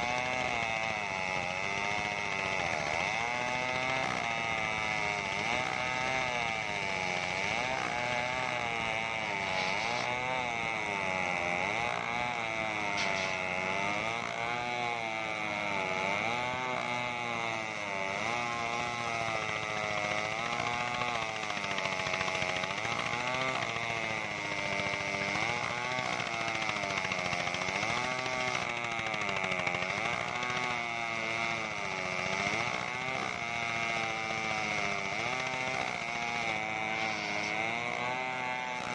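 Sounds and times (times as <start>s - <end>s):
saw blade high whine: 9.3s - 10.3s, 12.9s - 13.6s, 35.8s - 38.1s
engine running under load: 12.8s - 13.9s.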